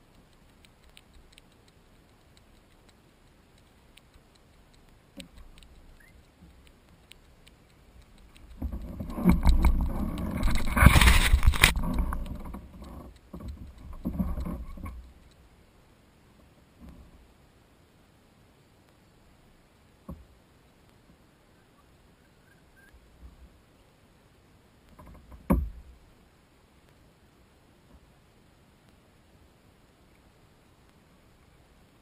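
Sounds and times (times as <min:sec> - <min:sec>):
faint clicks: 0:00.0 - 0:15.7, 0:20.0 - 0:23.5
bumps and scraping on kayak: 0:08.5 - 0:15.0.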